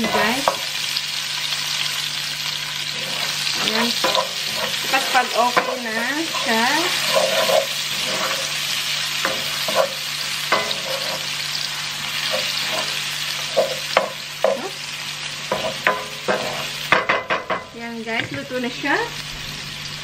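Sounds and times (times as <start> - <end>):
onions sizzling in oil: 0.0 - 20.0
wooden spoon scraping a pan: 2.9 - 14.7, 15.5 - 17.0.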